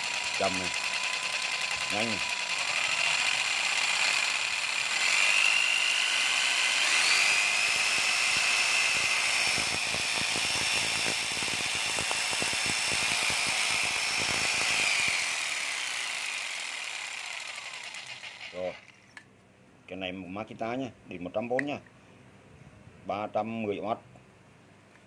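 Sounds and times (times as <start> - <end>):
electric jigsaw whining: 0.0 - 19.0.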